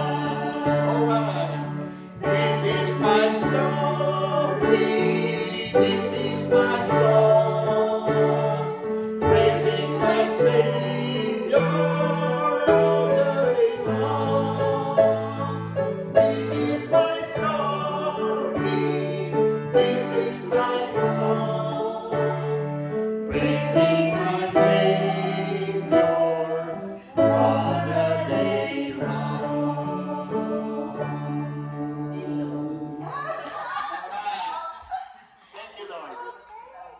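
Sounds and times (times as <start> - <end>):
piano accompaniment: 0.0 - 33.3
group singing gospel song: 0.0 - 35.5.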